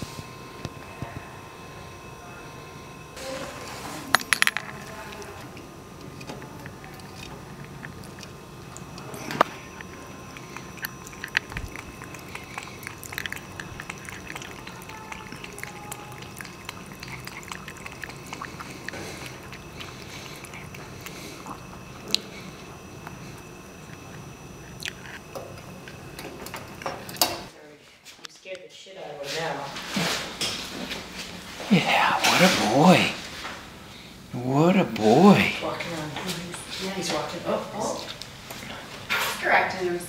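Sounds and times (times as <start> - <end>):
cat lapping water: 6.1 - 27.5.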